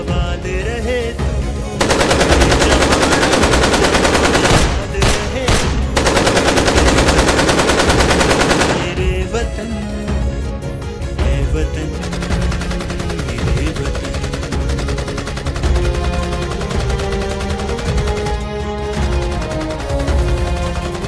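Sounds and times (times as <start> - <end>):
background music: 0.0 - 21.0
rapid automatic gunfire: 1.8 - 9.2, 11.9 - 21.0.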